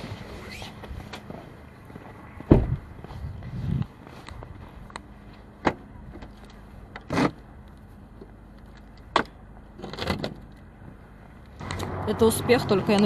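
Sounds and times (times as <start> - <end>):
car boot lid knocks and clunks: 2.5 - 2.8.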